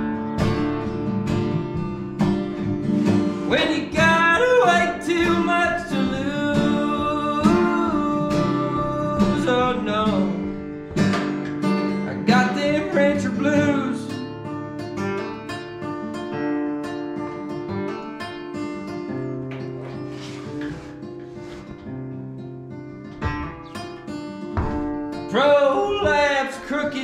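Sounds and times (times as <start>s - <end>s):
acoustic guitar: 0.0s - 27.0s
man singing country song: 3.4s - 14.7s, 25.1s - 27.0s.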